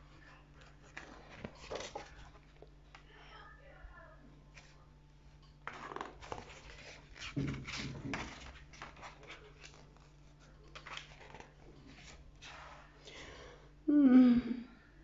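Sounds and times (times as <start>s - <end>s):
paper pages rustling: 0.6s - 2.7s, 5.6s - 12.9s.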